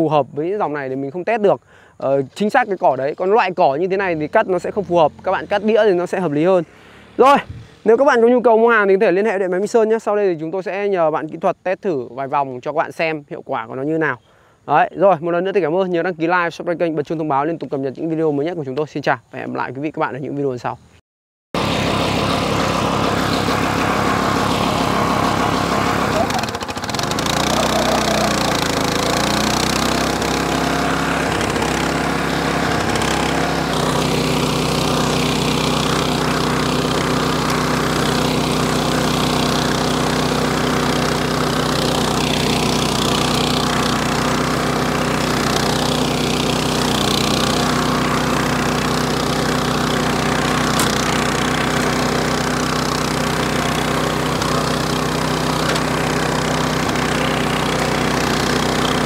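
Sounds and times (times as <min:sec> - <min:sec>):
mower engine running under load: 0:00.4 - 0:08.0, 0:21.6 - 0:59.0.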